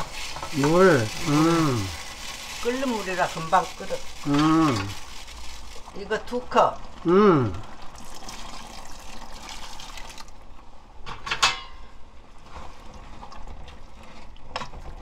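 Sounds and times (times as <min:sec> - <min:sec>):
soup bubbling: 0:00.0 - 0:06.0, 0:06.8 - 0:10.6
water pouring and splashing: 0:00.0 - 0:06.1, 0:07.7 - 0:10.5, 0:12.4 - 0:15.0.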